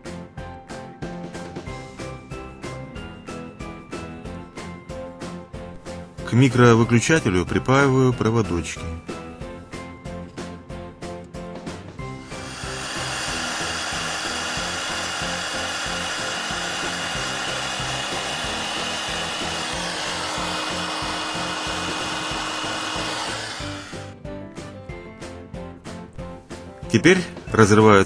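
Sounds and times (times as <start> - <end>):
hot-air blower whining: 12.1 - 24.1.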